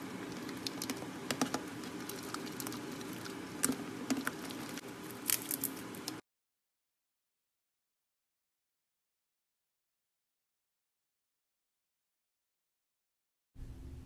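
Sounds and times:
spatula stirring sticky slime: 0:00.0 - 0:06.2.

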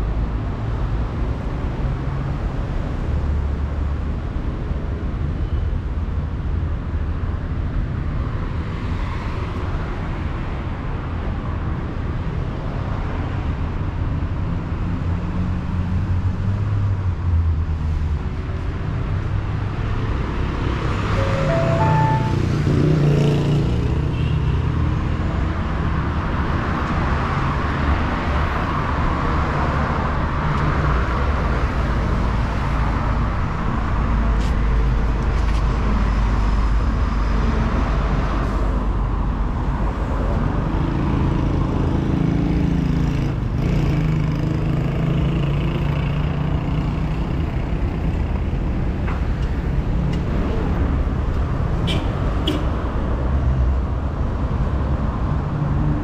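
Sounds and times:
car traffic rumble: 0:00.0 - 0:56.0
heavy engine passing: 0:20.3 - 0:23.7.

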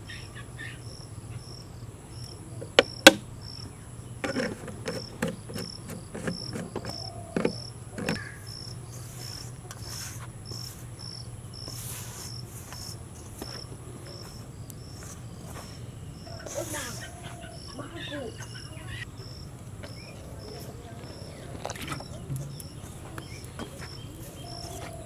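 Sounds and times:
crickets chirping: 0:00.0 - 0:25.0
high insect whine: 0:00.0 - 0:25.0
sharp knocks: 0:02.6 - 0:03.3.

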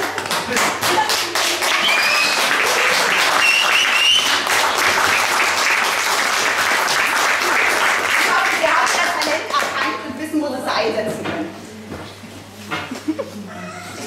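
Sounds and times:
audience applauding: 0:00.0 - 0:09.9.

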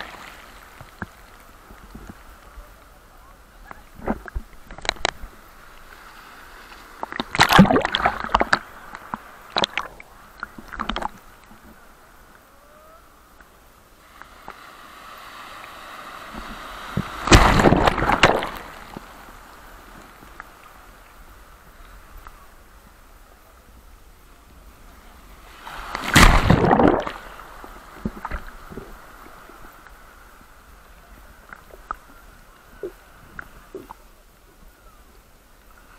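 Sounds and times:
surf rushing: 0:00.0 - 0:13.3, 0:13.9 - 0:22.6, 0:24.6 - 0:30.9
waves crashing on shore: 0:00.0 - 0:23.2, 0:24.2 - 0:31.4.

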